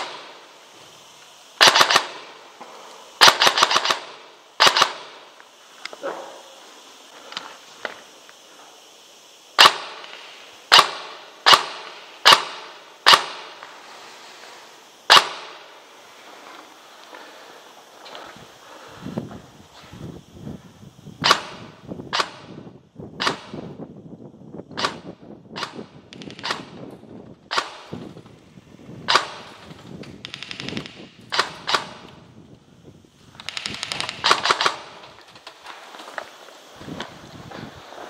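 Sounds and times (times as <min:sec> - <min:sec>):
airsoft gun full-auto bursts: 0:01.5 - 0:02.4, 0:03.2 - 0:05.3, 0:09.6 - 0:13.7, 0:15.1 - 0:15.8, 0:21.2 - 0:22.6, 0:24.8 - 0:26.8, 0:29.0 - 0:32.2, 0:33.3 - 0:35.2
airsoft gun single shots: 0:01.6 - 0:02.3, 0:03.2 - 0:05.2, 0:09.6 - 0:13.7, 0:15.1 - 0:15.8, 0:21.2 - 0:22.6, 0:23.2 - 0:23.7, 0:24.8 - 0:26.9, 0:29.0 - 0:29.6, 0:30.2 - 0:32.1, 0:33.4 - 0:35.2.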